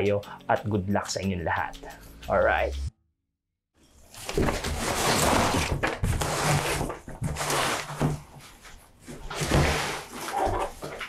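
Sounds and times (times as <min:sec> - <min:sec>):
cardboard rustling and scraping: 0:04.0 - 0:11.0.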